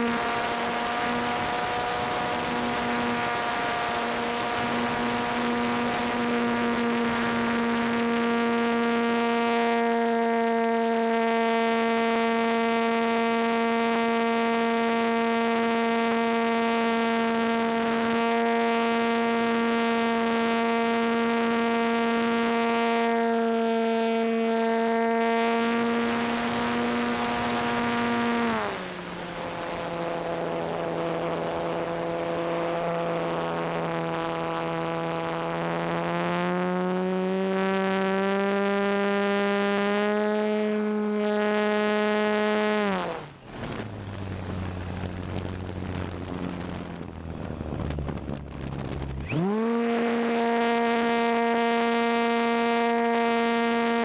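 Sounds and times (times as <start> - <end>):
electric motor and propeller whining: 0.0 - 54.0
wind rushing: 43.4 - 49.5.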